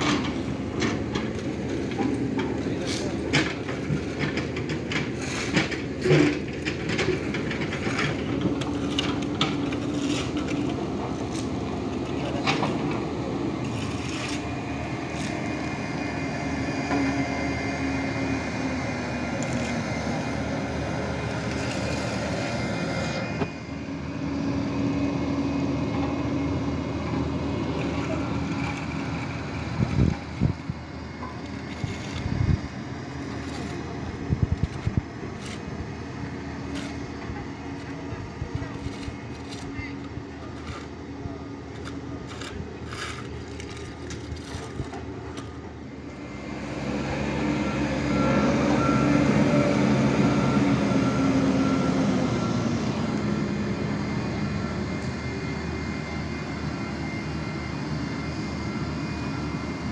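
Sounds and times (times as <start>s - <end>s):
diesel engines droning: 0.0s - 59.9s
shovels scraping gravel: 1.0s - 12.8s, 13.6s - 15.6s, 21.3s - 22.3s, 31.3s - 34.0s, 34.6s - 35.8s, 36.6s - 37.1s, 37.8s - 41.0s, 41.6s - 45.7s.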